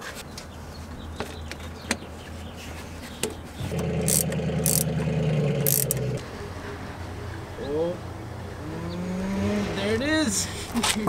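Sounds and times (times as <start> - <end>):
motor running steadily: 3.6 - 6.2
low hum: 3.6 - 7.2
sharp high clicks: 3.7 - 6.2.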